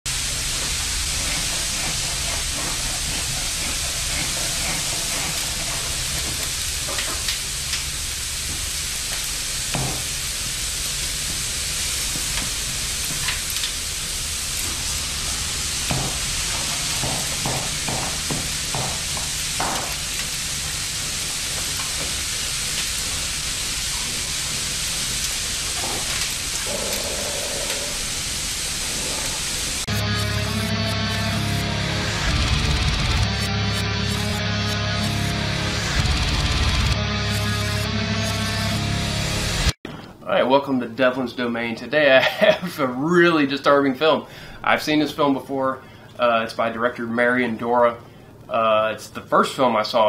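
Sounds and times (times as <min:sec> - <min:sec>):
food frying sizzle: 0:00.1 - 0:37.8.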